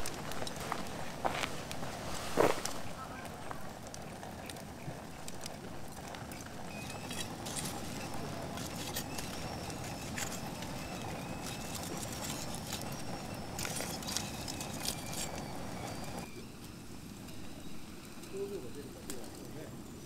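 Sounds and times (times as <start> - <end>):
sharp crackles: 0.0 - 19.7
faint hissing on hot metal: 0.0 - 20.0.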